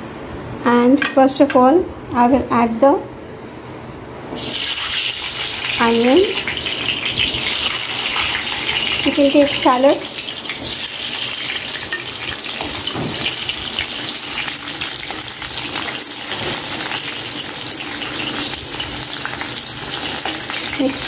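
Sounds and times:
shallots sizzling in hot oil: 0:04.4 - 0:21.0.

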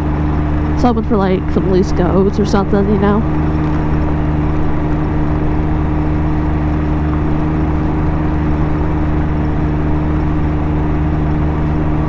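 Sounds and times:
motorcycle engine droning: 0:00.0 - 0:12.0
wind and road noise: 0:00.0 - 0:12.0.

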